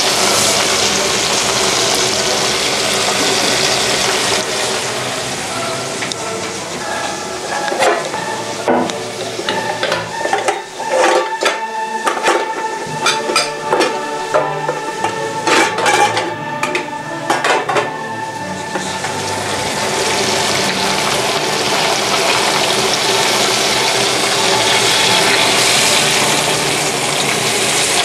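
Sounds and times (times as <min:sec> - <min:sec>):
fish sizzling in hot oil: 0:00.0 - 0:16.3, 0:17.6 - 0:28.0
cookware clinks and knocks: 0:06.9 - 0:18.0.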